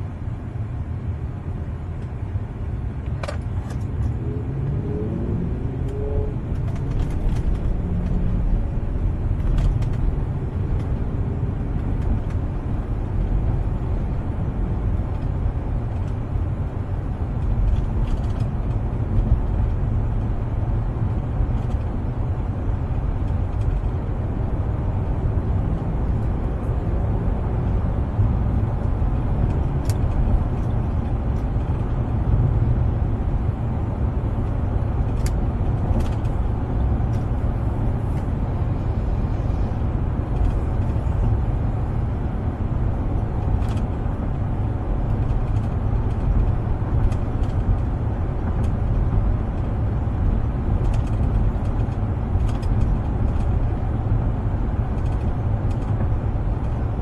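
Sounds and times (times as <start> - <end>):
road and engine rumble: 0.0 - 57.0.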